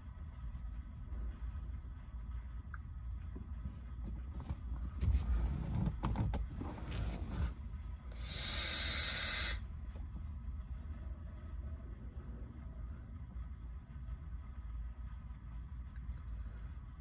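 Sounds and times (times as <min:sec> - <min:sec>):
airy hiss of vape draw: 0:08.1 - 0:09.6.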